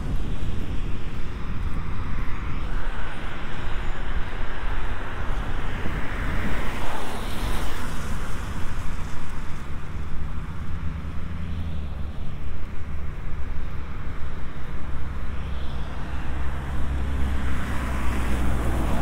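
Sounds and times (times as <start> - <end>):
wind rumble on microphone: 0.0 - 19.0
car tyres hissing on wet road: 6.6 - 12.0.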